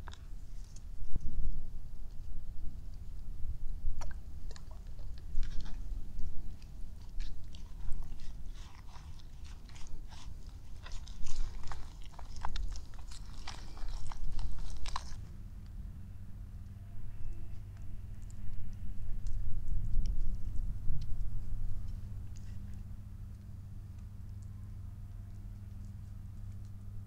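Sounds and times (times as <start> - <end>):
wooden spoon stirring wet paste: 4.8 - 15.2.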